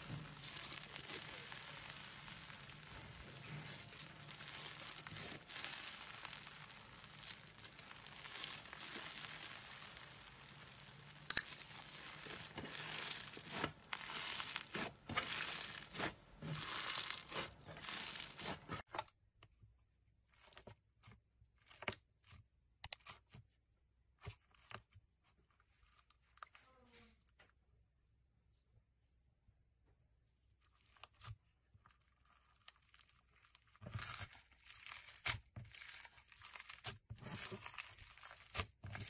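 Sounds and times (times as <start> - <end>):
slime tearing and crinkling: 0.0 - 18.9, 32.1 - 39.0.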